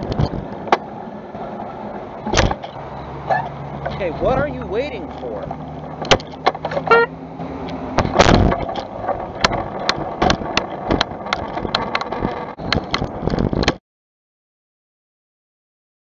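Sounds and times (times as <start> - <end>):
car engine and road hum: 0.0 - 13.8.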